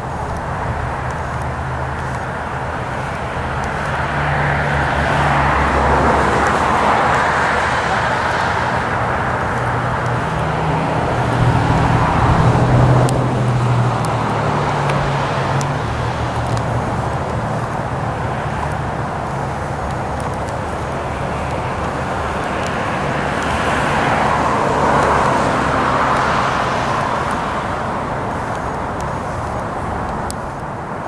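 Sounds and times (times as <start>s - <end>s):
distant engines rumbling: 0.0s - 31.0s
low hum: 10.9s - 13.8s.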